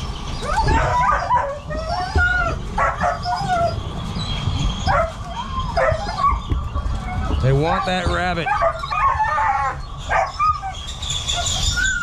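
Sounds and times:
dogs whining and yelping: 0.0s - 12.0s.

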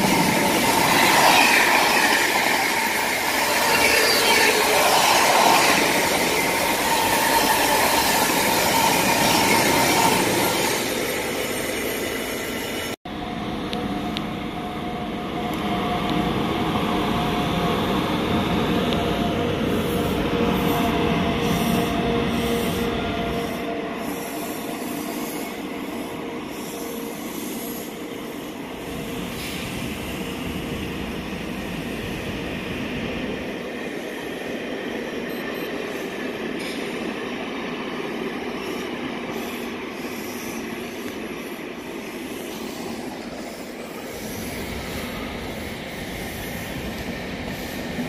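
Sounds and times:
freight train rumbling past: 0.0s - 35.3s, 36.0s - 48.0s.

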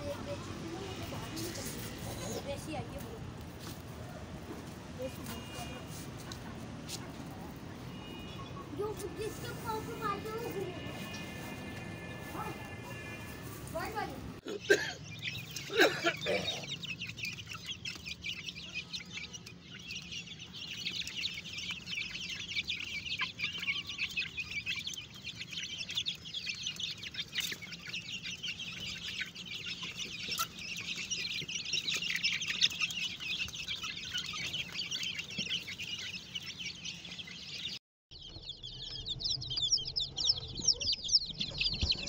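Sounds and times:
hens clucking: 0.0s - 37.6s
chicks cheeping: 0.0s - 42.0s
loud chicken call: 7.9s - 16.9s.

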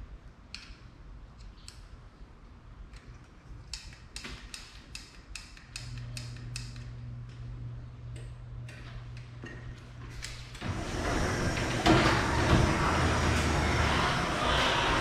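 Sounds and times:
low hum: 6.2s - 15.0s
garage door opener running: 8.0s - 15.0s.

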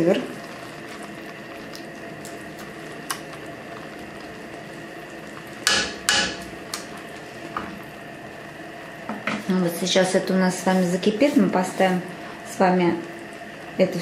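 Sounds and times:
sauce sizzling: 0.0s - 14.0s.

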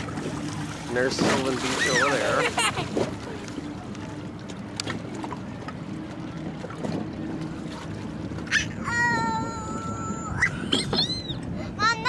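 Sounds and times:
boat engine rumble: 0.0s - 12.0s
water: 0.0s - 12.0s
wind on microphone: 8.5s - 11.8s.

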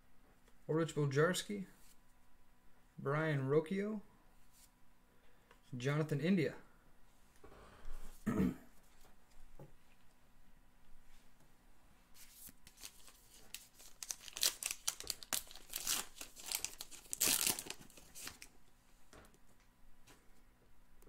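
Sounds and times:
plastic wrapper tearing and crinkling: 12.6s - 18.5s.

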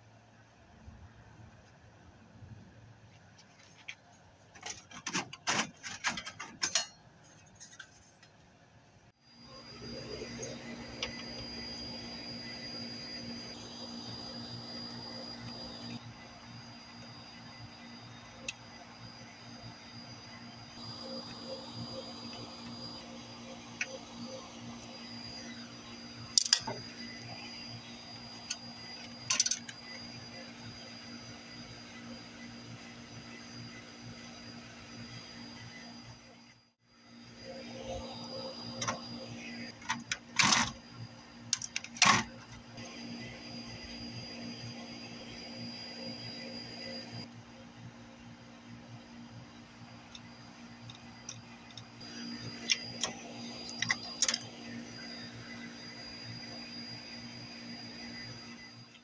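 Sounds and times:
circuit board clattering on metal: 4.6s - 7.0s.

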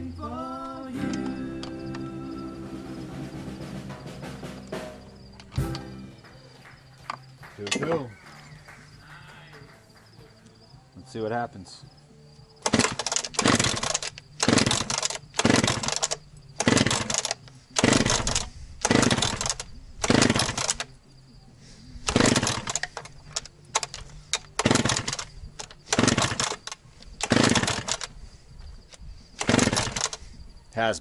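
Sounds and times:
chainsaw pull-start whirring: 12.6s - 20.9s, 22.0s - 28.2s, 29.4s - 30.2s.

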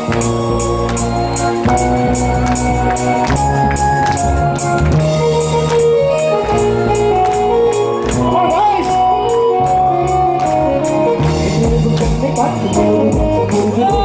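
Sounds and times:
electric guitar: 0.0s - 14.0s
keyboard chords: 0.0s - 14.0s
electronic drum beats: 10.5s - 14.0s
person singing: 11.1s - 14.0s.

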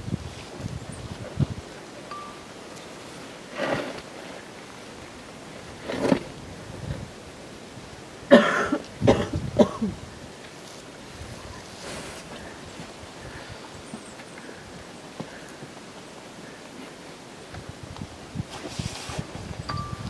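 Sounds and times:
person coughing: 8.3s - 10.0s.

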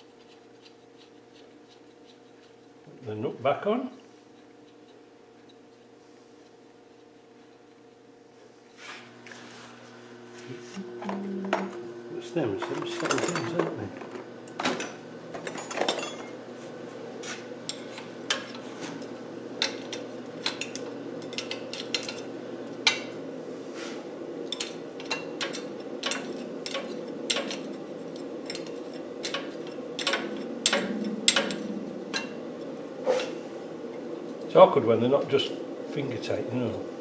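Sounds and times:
steady low hum: 0.0s - 37.0s
metal spanner clinking on nut: 24.5s - 32.3s.

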